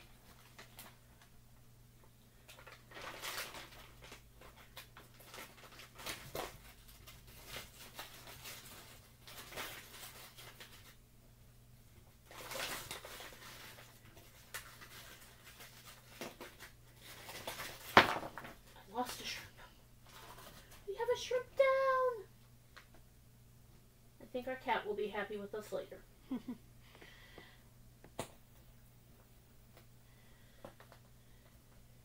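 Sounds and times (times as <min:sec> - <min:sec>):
plastic bag crinkling: 0:02.4 - 0:11.0, 0:12.2 - 0:19.4, 0:20.0 - 0:22.1.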